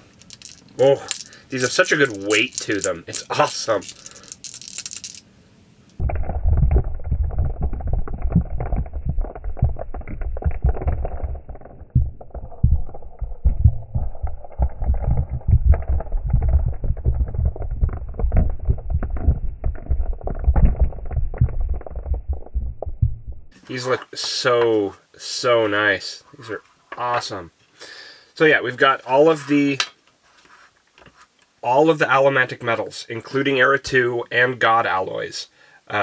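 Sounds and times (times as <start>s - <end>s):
slowed dice low dull knocks: 5.9s - 23.6s
deep rumble: 6.0s - 23.6s.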